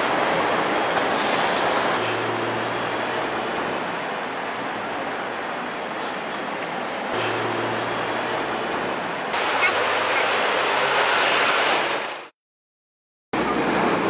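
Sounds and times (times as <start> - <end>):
tram running hum: 0.0 - 12.0, 13.4 - 14.0.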